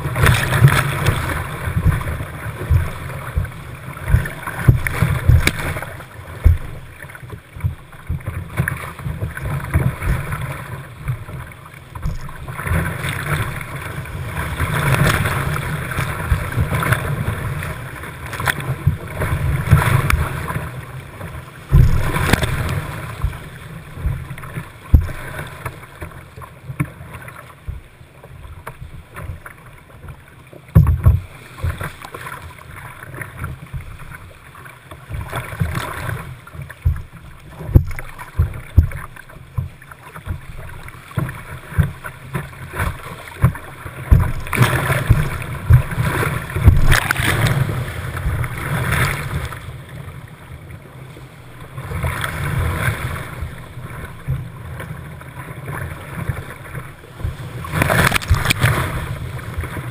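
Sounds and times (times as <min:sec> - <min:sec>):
waves splashing on kayak deck: 0:00.0 - 0:59.9
whitewater rushing: 0:21.7 - 0:25.7, 0:55.7 - 0:59.9.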